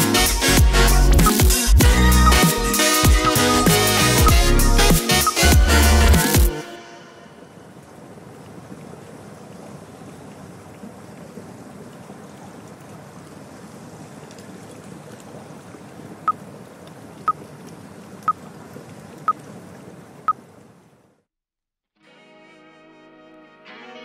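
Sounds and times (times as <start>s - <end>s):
short high timer beeps: 2.1s - 4.6s.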